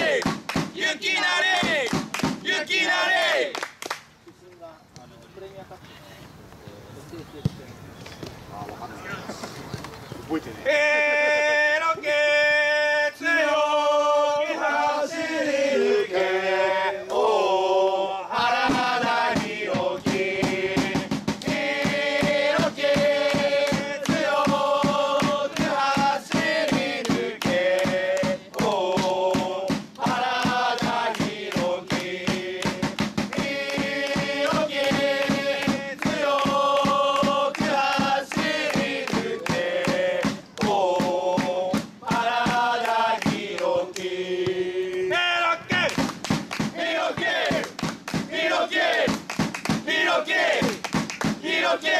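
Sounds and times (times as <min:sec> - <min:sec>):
football supporters chanting: 0:00.0 - 0:03.6, 0:10.6 - 0:51.9
fast beat: 0:18.5 - 0:43.6, 0:49.0 - 0:51.6.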